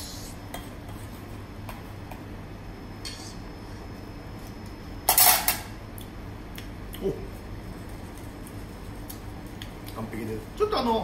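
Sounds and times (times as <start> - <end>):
kitchen background noise: 4.4 - 5.8.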